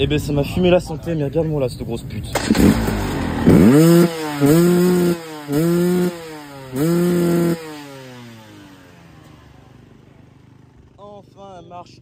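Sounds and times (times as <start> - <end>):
motorcycle engine revving: 2.3 - 11.5.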